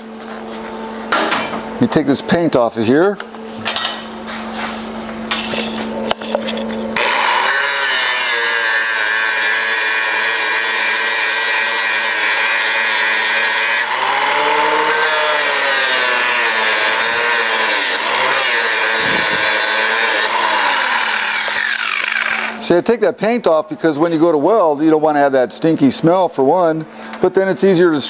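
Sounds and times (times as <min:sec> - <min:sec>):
angle grinder grinding metal: 0:06.4 - 0:22.8.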